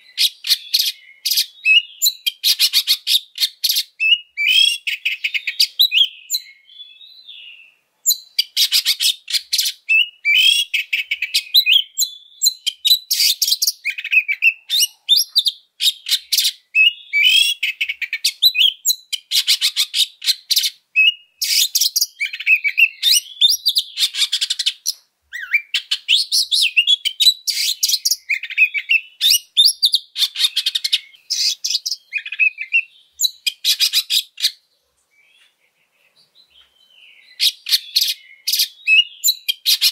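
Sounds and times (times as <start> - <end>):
bird singing rattling song: 0.0 - 39.9.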